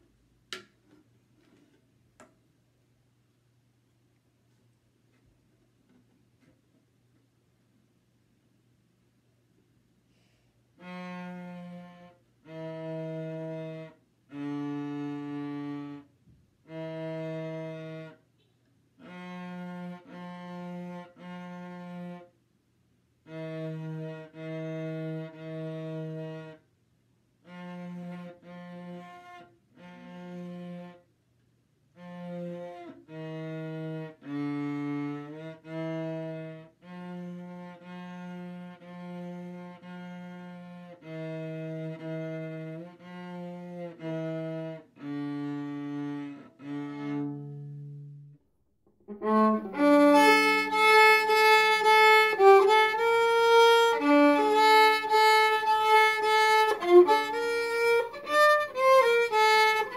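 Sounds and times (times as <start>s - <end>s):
bowed cello melody: 10.7s - 18.2s, 19.0s - 22.3s, 23.2s - 26.6s, 27.4s - 31.1s, 31.9s - 48.4s, 49.0s - 59.9s.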